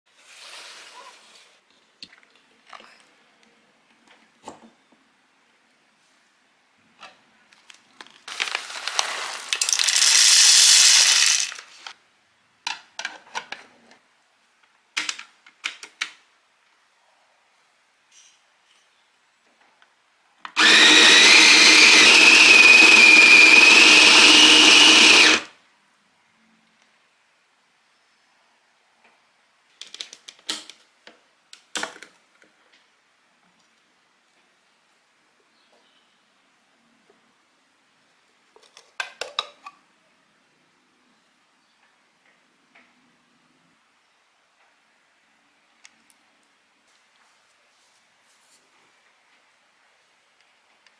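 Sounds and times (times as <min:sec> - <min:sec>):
coffee beans rattling into hopper: 0:08.3 - 0:11.8.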